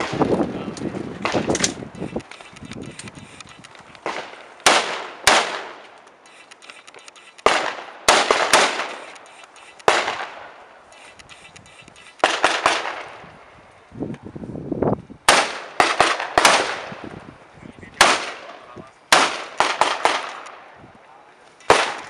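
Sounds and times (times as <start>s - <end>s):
gunshots with ringing echo: 4.0s - 5.8s, 7.4s - 9.2s, 9.8s - 10.6s, 12.2s - 13.2s, 15.3s - 16.9s, 18.0s - 20.7s, 21.7s - 22.0s.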